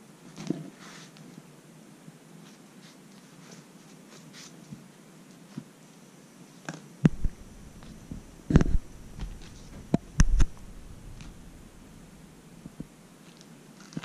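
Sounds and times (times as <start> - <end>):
light rustling: 7.0 - 13.5.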